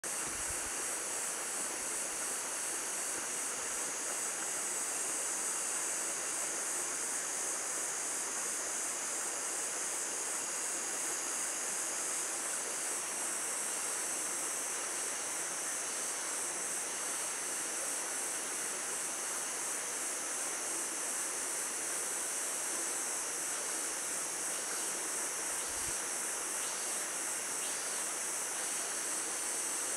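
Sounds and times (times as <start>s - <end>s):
lower insect song: 0.0s - 29.9s
insects trilling shrilly: 23.5s - 29.9s.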